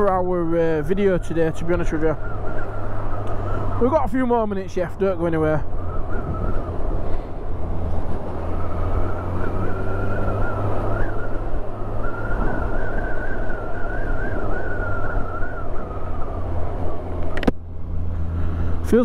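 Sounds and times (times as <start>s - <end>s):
wind rush on microphone: 0.0s - 19.0s
wavering wind whistle: 0.6s - 17.3s.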